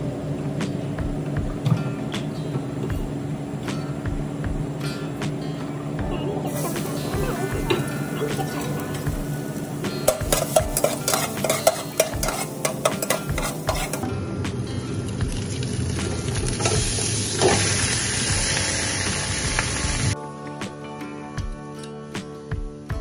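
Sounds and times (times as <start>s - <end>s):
chicken sizzling: 6.2s - 14.0s, 14.6s - 20.2s
garlic sizzling in oil: 6.5s - 14.0s, 15.0s - 20.2s
metal spatula scraping a pot: 10.1s - 14.0s.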